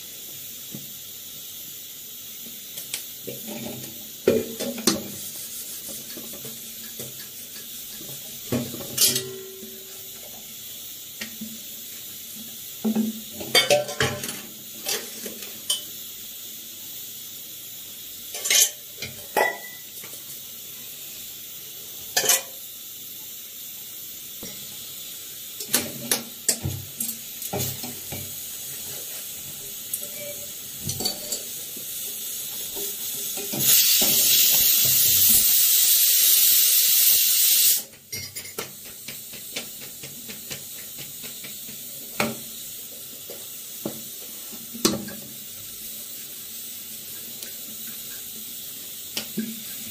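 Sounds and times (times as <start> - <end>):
pressure cooker steam hiss: 0.0 - 49.9
metal tongs clinking on metal: 9.0 - 9.6.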